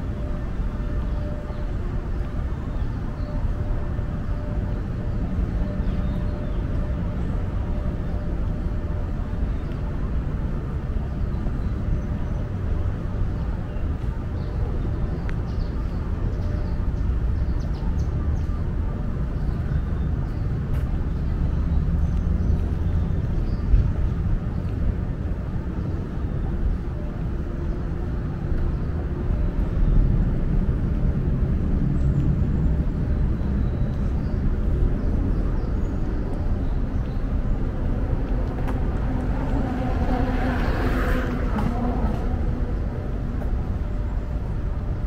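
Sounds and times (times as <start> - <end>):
road traffic rumble: 0.0 - 45.0
vehicle passing close: 32.5 - 45.0.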